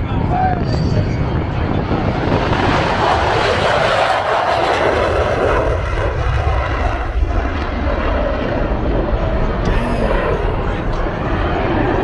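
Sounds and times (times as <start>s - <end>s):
airplane flying over: 0.0s - 12.0s
wind rumble on microphone: 0.0s - 12.0s.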